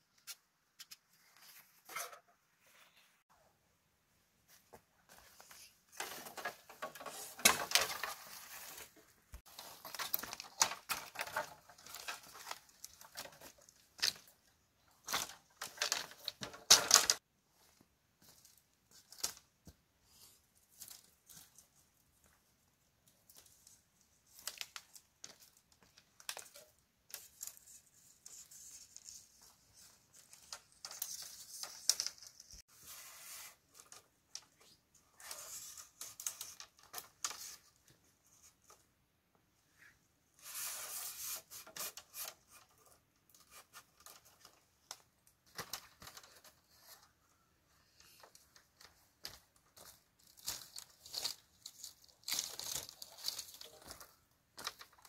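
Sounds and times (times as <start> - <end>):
bamboo tearing and crackling: 6.0 - 8.4, 9.4 - 14.3, 15.0 - 17.2, 50.2 - 55.0.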